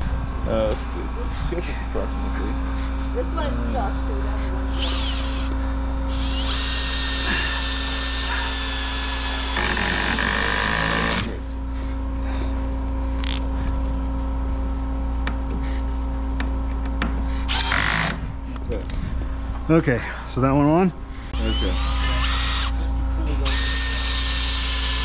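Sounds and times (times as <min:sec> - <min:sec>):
steady low hum: 0:00.0 - 0:25.0
power driver driving screw into wood: 0:04.7 - 0:05.5, 0:06.1 - 0:11.4, 0:17.5 - 0:18.2.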